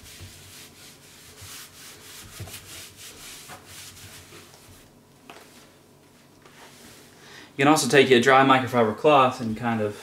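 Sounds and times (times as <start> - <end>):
sponge scrubbing cabinet door: 0.0 - 4.9.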